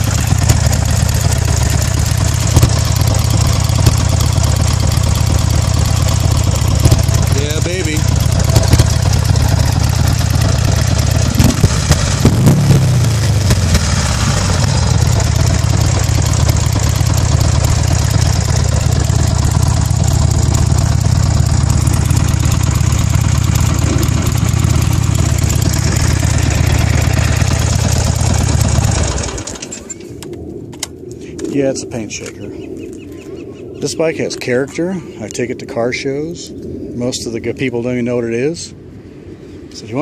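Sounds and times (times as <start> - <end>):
motorcycle engine idling: 0.0 - 29.7.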